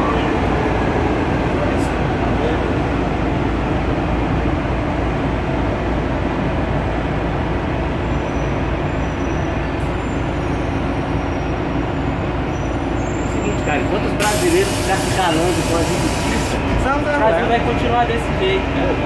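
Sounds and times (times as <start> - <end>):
metro train rumble and hum: 0.0 - 19.0.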